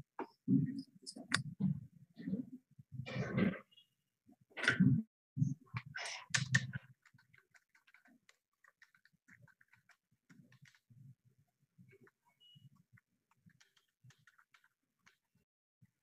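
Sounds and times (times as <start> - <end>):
computer keyboard typing: 6.4 - 10.9, 12.0 - 15.4.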